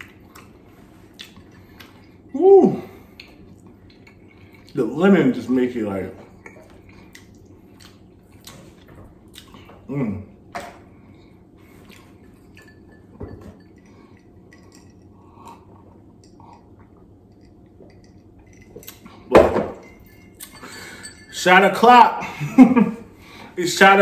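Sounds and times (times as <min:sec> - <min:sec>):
chewing: 0:00.0 - 0:02.3, 0:06.4 - 0:09.7.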